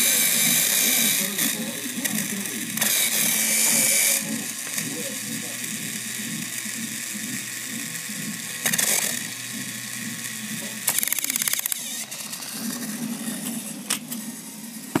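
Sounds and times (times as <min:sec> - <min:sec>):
toy train motor whirring: 0:00.0 - 0:15.0
sharp clicks of toys handled: 0:10.8 - 0:12.0.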